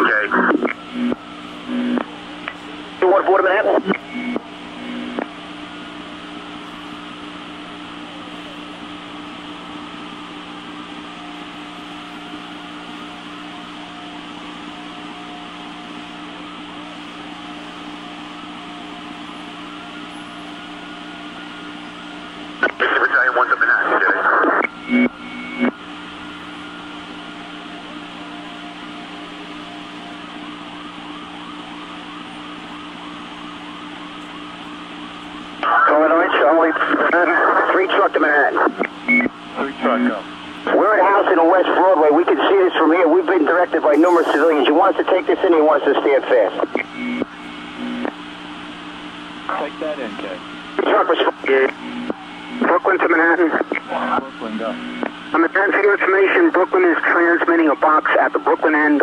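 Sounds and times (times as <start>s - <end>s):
radio hiss: 0.0s - 2.1s, 3.0s - 5.3s, 22.6s - 25.7s, 35.6s - 48.1s, 49.5s - 59.0s
constant low hum: 0.0s - 59.0s.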